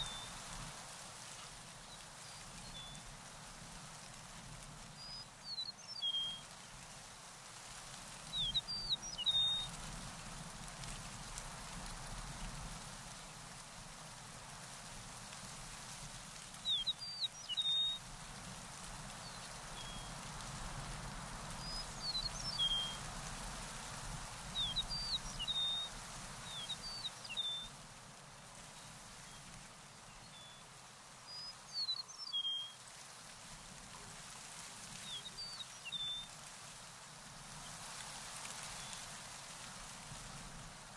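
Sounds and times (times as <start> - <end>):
steady outdoor hiss: 0.0 - 40.9
songbird chirping: 31.3 - 32.8.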